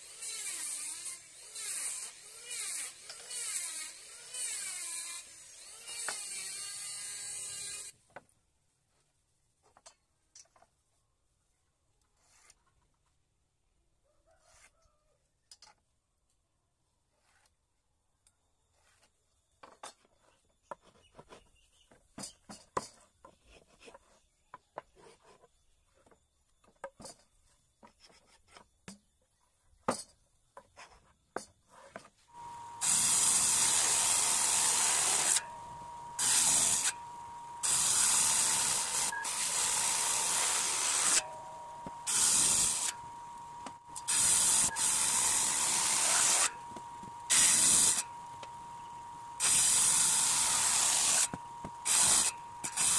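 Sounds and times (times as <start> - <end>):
electric saw cutting wood: 0.0 - 8.0, 32.3 - 52.9.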